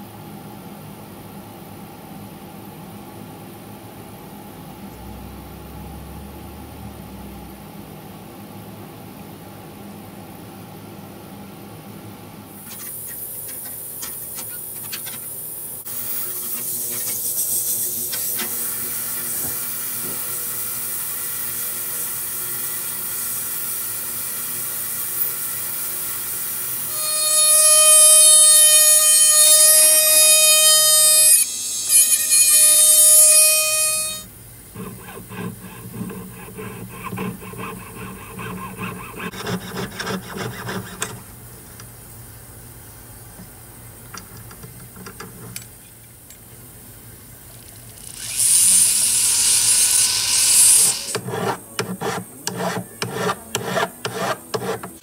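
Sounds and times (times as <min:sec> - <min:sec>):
hiss: 0:16.0 - 0:28.2
jeweler's saw cutting metal: 0:26.8 - 0:41.2, 0:48.1 - 0:55.0.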